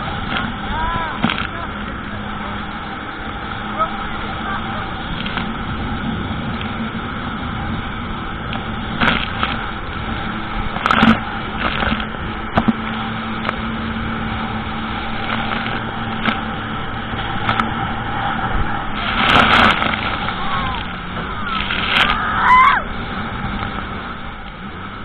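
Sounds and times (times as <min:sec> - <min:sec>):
jet ski engine running: 0:00.0 - 0:25.0
sharp knocks or splashes: 0:19.0 - 0:22.2.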